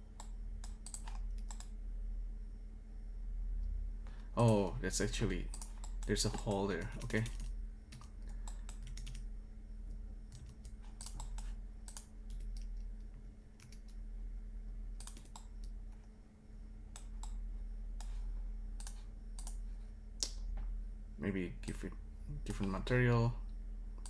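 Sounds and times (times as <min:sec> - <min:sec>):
steady low hum: 0:00.0 - 0:24.0
mouse clicks: 0:00.2 - 0:01.7, 0:18.8 - 0:19.6.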